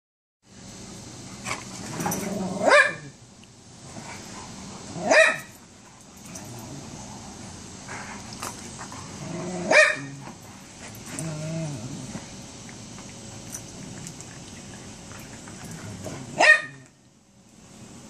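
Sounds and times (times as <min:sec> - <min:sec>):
dogs growling: 0:01.5 - 0:02.8, 0:06.2 - 0:16.9
dog barks: 0:02.6 - 0:03.1, 0:05.0 - 0:05.6, 0:09.6 - 0:10.2, 0:16.3 - 0:16.9.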